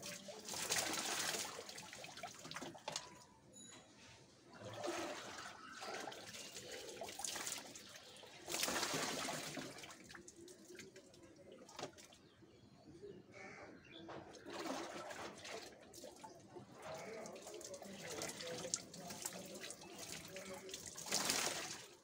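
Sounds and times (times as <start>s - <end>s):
water splashing from hair: 0.0s - 3.0s, 4.8s - 11.2s, 17.0s - 22.0s.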